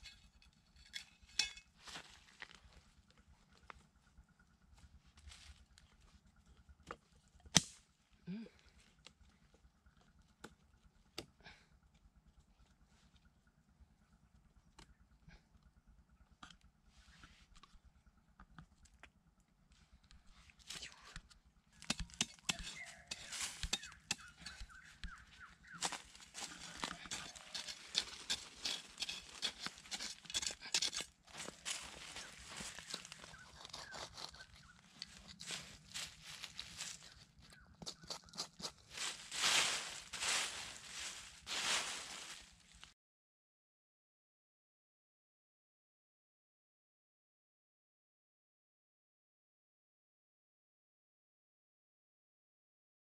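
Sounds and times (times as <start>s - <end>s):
sharp crack: 7.5s - 7.8s
wooden sticks clicking and knocking: 20.8s - 42.3s
dry leaves rustling: 22.4s - 42.9s.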